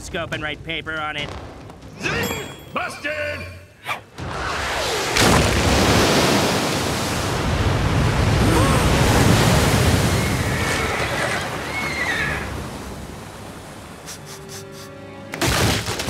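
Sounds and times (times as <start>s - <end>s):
water rushing: 4.6s - 15.4s
whinny-like cry: 10.2s - 12.5s.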